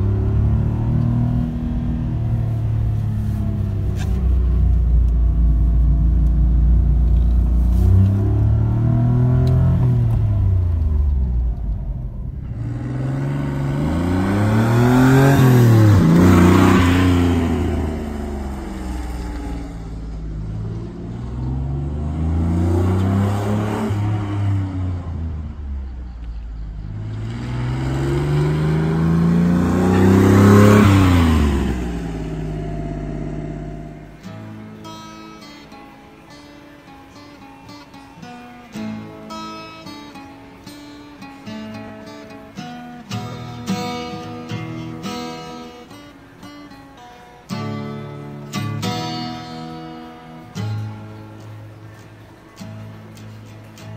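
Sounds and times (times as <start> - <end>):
small van engine revving: 0.0 - 35.2.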